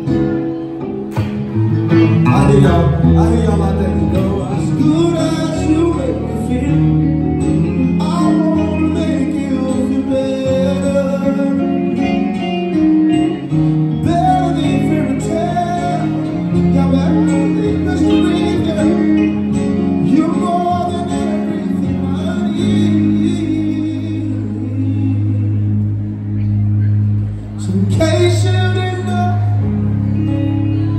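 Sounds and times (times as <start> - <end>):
guitar: 0.0 - 30.9
keyboard: 0.0 - 30.9
man singing into microphone: 1.9 - 26.1, 27.6 - 30.9.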